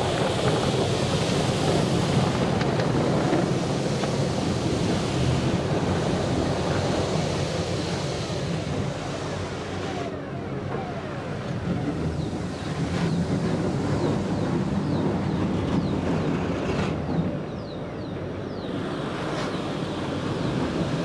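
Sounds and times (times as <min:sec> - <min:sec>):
water spray jets rushing: 0:00.0 - 0:10.2, 0:18.4 - 0:21.0.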